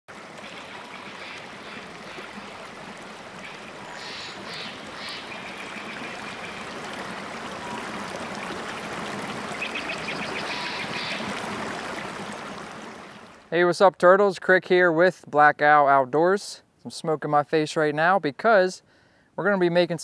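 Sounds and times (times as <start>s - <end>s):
creek water rushing over rocks: 0.1s - 13.5s.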